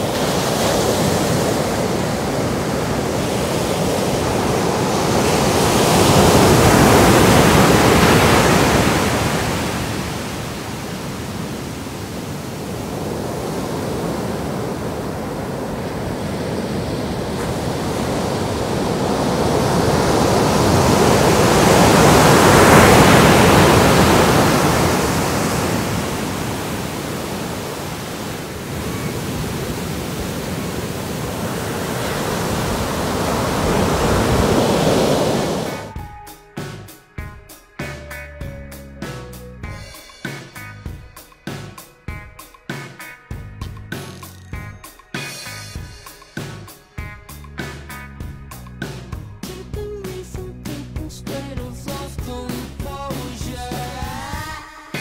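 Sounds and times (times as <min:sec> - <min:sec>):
ocean surf breaking: 0:00.0 - 0:36.0.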